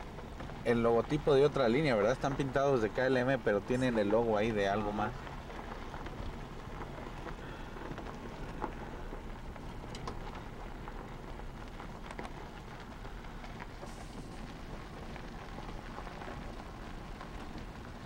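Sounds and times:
faint clicks and ticks: 5.0s - 18.0s.

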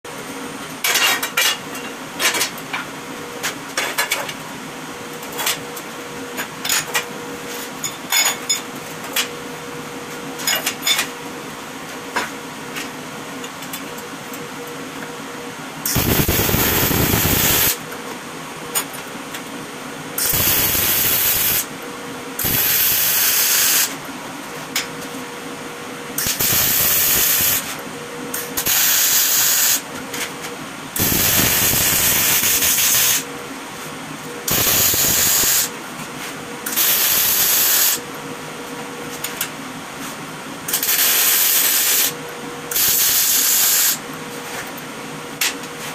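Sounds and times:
steady hum: 3.0s - 43.2s
welding crackles and pops: 15.9s - 17.8s, 20.2s - 21.6s, 22.4s - 23.2s, 26.2s - 27.6s, 31.0s - 33.0s, 34.5s - 35.7s
welding sizzle: 15.9s - 17.8s, 20.2s - 21.7s, 22.4s - 23.9s, 26.2s - 27.7s, 31.0s - 33.2s, 34.5s - 35.7s, 36.7s - 38.0s, 42.8s - 44.0s.

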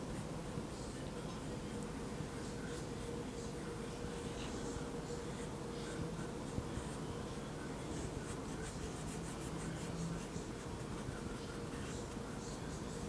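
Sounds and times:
faint steady hum: 0.0s - 13.0s
paintbrush strokes: 5.7s - 12.2s.

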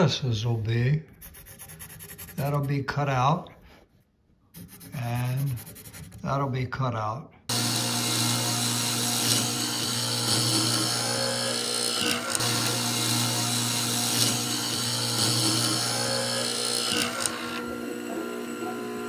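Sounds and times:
chisel cutting into wood: 7.5s - 17.7s
mortiser motor hum: 7.5s - 19.0s.

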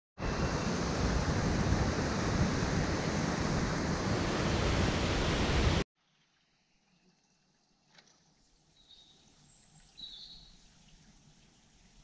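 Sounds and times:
stream rushing over rocks: 0.2s - 5.8s.

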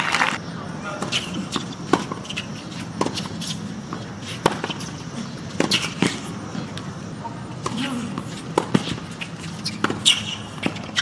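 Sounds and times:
tennis ball struck by rackets: 1.0s - 6.8s, 7.6s - 9.0s, 9.7s - 11.0s
tennis ball bouncing on court: 1.0s - 6.9s, 7.6s - 11.0s.

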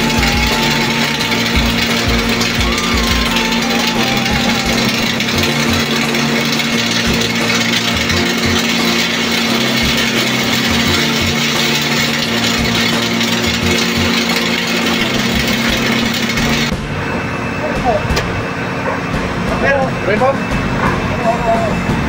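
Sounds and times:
welding arc crackling hiss: 0.0s - 16.8s
low electrical hum: 0.0s - 22.0s.

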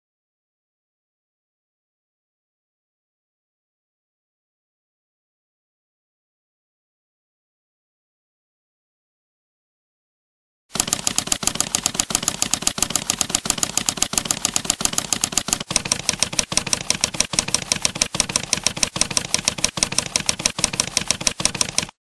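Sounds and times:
typewriter key clicks: 10.8s - 22.0s.

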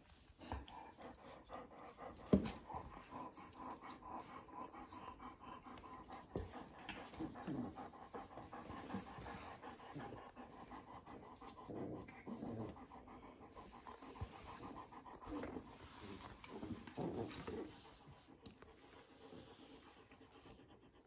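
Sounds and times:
dog panting: 0.0s - 21.0s.

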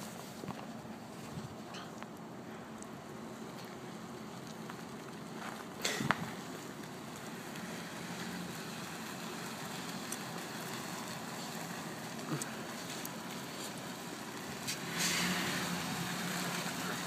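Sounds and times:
suv engine and tyres: 0.0s - 17.0s
outdoor hiss: 2.2s - 17.0s.

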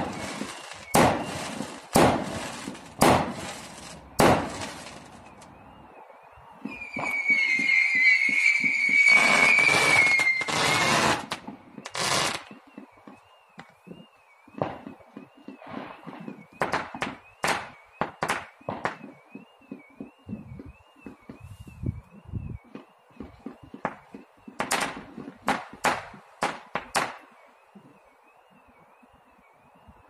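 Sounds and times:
sharp firework bangs: 0.0s - 5.1s
firework bursts: 0.0s - 5.4s, 6.7s - 12.9s
firework crackling: 0.0s - 5.4s, 6.7s - 12.6s
whistling firework: 0.0s - 30.0s.

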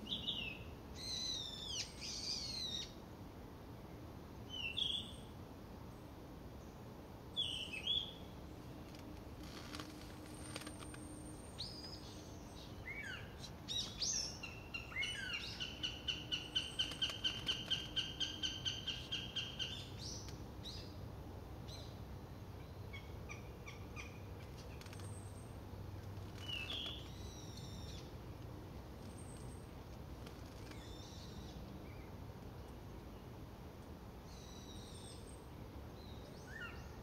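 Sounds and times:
small birds chirping and whistling: 0.0s - 3.0s, 10.6s - 20.9s, 26.4s - 28.1s, 34.3s - 35.4s.

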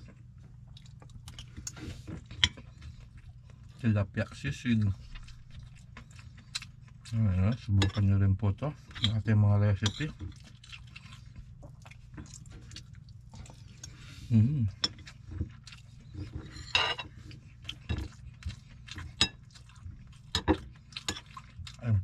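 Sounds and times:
cutlery clinking against ceramic bowl: 7.5s - 8.1s, 8.9s - 10.2s, 16.2s - 18.2s, 19.0s - 19.5s
person humming: 14.3s - 14.7s.

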